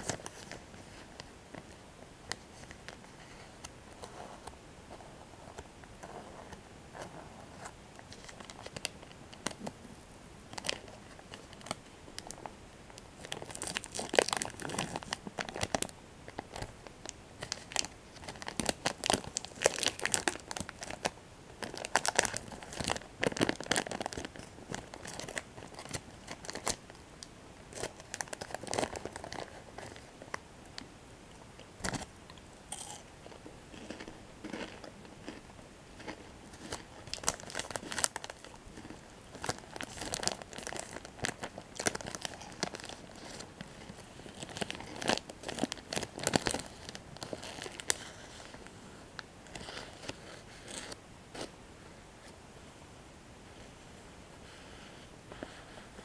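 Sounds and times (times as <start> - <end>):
paper wrapper crinkling: 10.5 - 12.5, 13.2 - 27.0, 27.7 - 30.3, 36.0 - 48.6
plastic wrapper tearing: 13.2 - 16.7, 17.4 - 26.8, 27.7 - 30.0, 36.6 - 43.5, 44.3 - 48.0.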